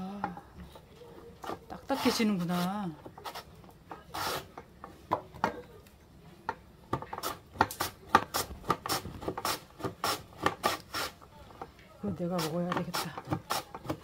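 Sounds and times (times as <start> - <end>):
potato rasping over slicer blade: 1.4 - 4.6, 7.1 - 11.2, 12.2 - 14.0.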